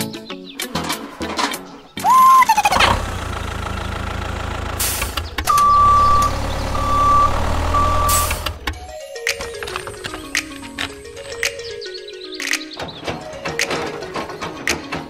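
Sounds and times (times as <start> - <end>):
heavy vehicle engine running: 2.1 - 8.8
air brake hisses: 4.7 - 6.2
short rising tone: 4.8 - 8.6
reversing alarm beeping: 5.5 - 8.6.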